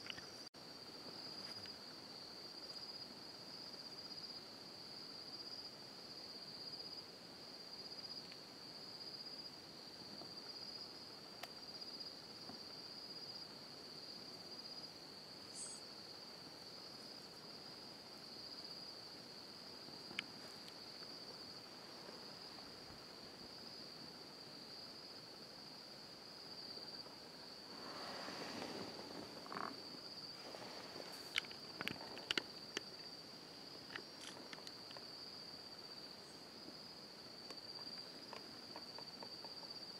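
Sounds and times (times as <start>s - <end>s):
crickets trilling: 0.0s - 39.9s
rustling: 27.5s - 33.1s.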